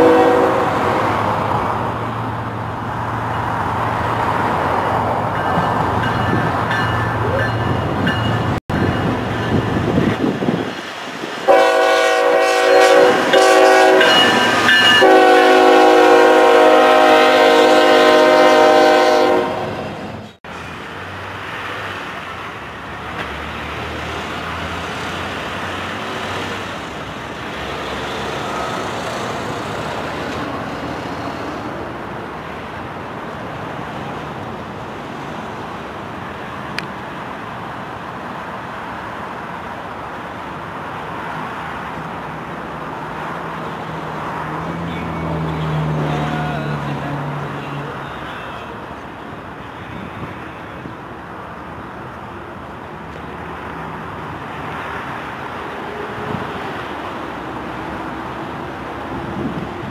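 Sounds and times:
locomotive air horn blasts: 0.0 - 1.0, 11.5 - 20.0
train rumble: 0.0 - 59.9.

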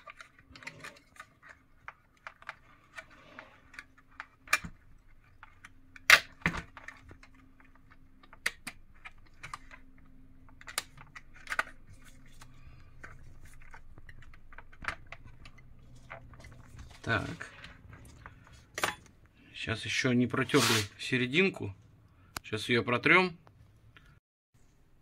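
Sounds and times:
plastic parts clicking: 0.0 - 12.4.

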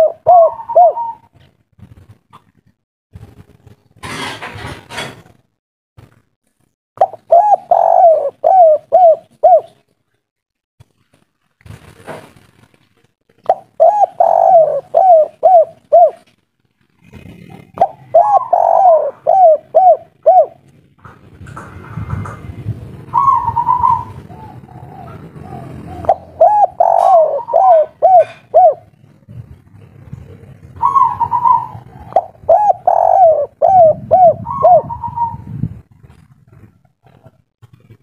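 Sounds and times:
dove cooing: 0.0 - 1.4, 7.0 - 9.8, 13.4 - 16.3, 17.0 - 20.7, 23.0 - 37.4.

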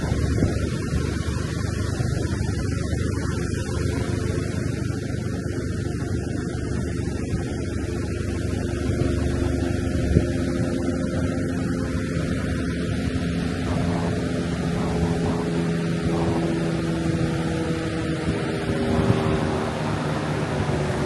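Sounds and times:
faint tonal drone: 0.0 - 21.0.

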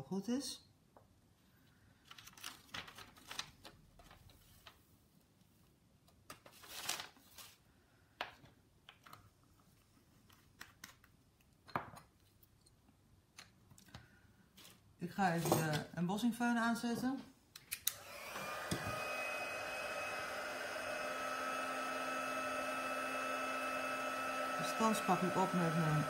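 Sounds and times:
rustling of materials: 1.5 - 7.7.

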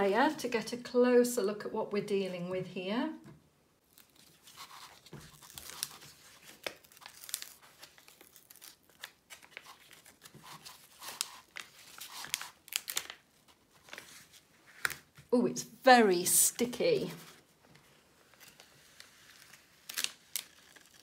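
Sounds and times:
plastic film peeling and crackling: 3.8 - 15.3, 17.2 - 21.0.

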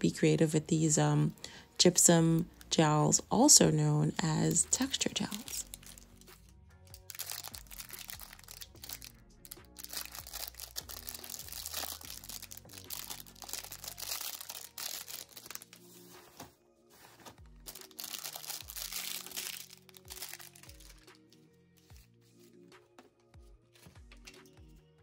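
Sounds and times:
background music: 0.0 - 25.0
packaging crinkling: 5.2 - 6.4, 7.0 - 21.2.

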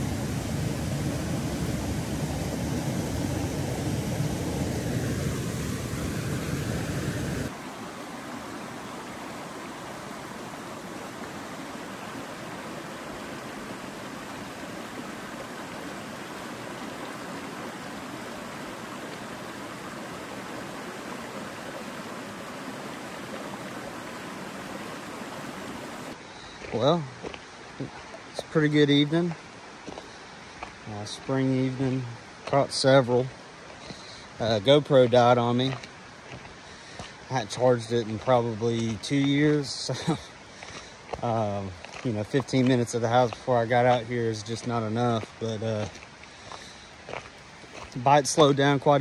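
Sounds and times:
stream water rushing: 0.0 - 49.0.

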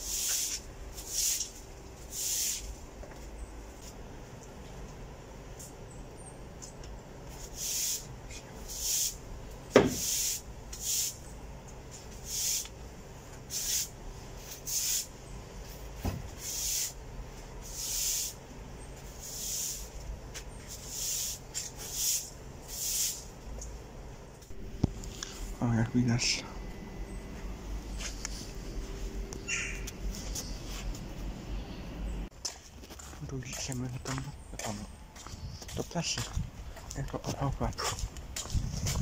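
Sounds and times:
broom sweeping over paving: 0.0 - 2.8, 7.3 - 9.2, 9.9 - 11.2, 11.9 - 12.7, 13.4 - 17.0, 17.6 - 18.4, 19.0 - 23.4, 27.9 - 29.0.

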